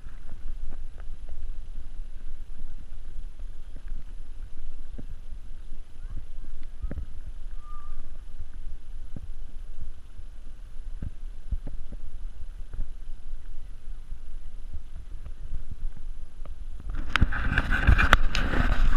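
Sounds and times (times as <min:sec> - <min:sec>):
wind buffeting microphone: 0:00.0 - 0:18.9
faint bird chirp: 0:05.5 - 0:08.4.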